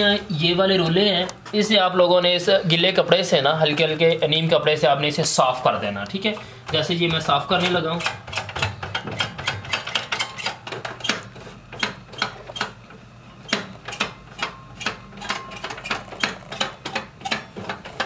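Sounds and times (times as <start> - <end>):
plastic rollers clicking and rattling: 13.5 - 18.0.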